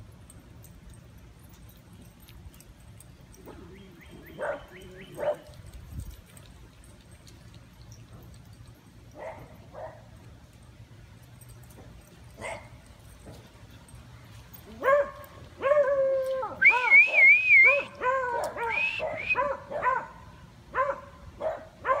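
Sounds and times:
dog baying and yelping: 3.3 - 5.5.

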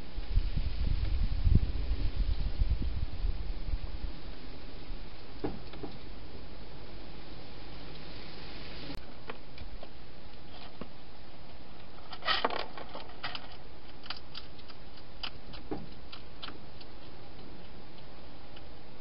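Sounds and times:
steady hiss: 0.0 - 11.7
hedgehog crunching food: 12.7 - 19.0.

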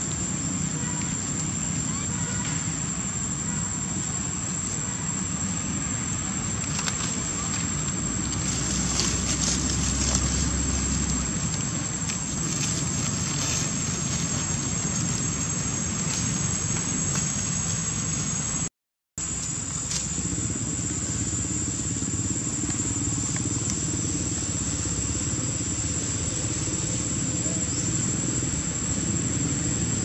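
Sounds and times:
outdoor background hiss: 0.0 - 30.0
faint crackles: 4.0 - 18.5.

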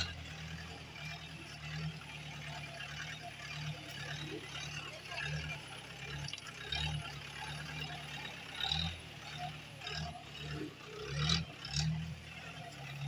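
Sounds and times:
vehicle engine running slowly: 0.0 - 13.0.

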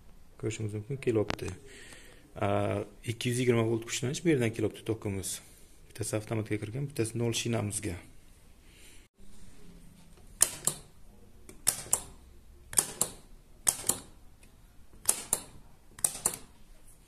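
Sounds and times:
push-button switch clicks: 11.5 - 14.2, 15.0 - 16.5.

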